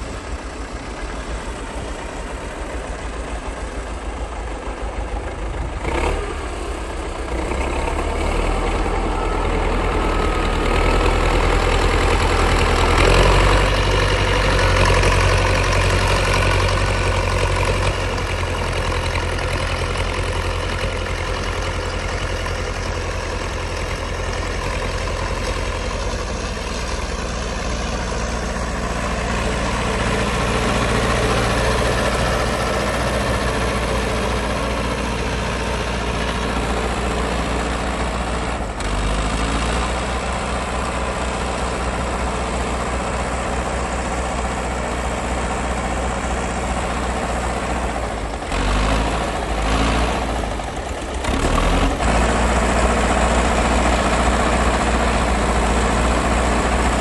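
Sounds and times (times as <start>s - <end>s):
tractor diesel engines under load: 0.0s - 57.0s.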